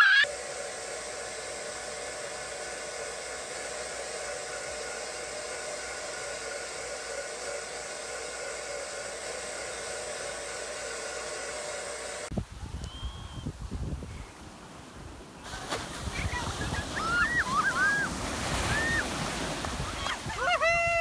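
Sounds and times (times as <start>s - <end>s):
hair dryer blowing: 0.0s - 21.0s
wind rumble on microphone: 12.3s - 21.0s
surf: 15.1s - 21.0s.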